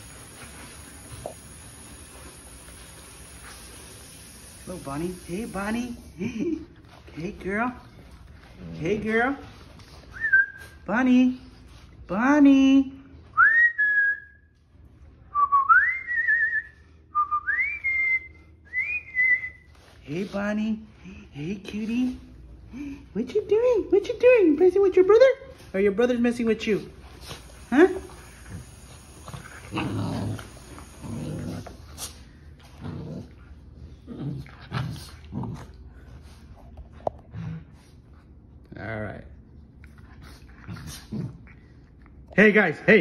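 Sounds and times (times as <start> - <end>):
person whistling: 10.2 - 10.6, 13.4 - 14.4, 15.3 - 19.6
puppies growling: 28.2 - 32.0, 32.6 - 36.1.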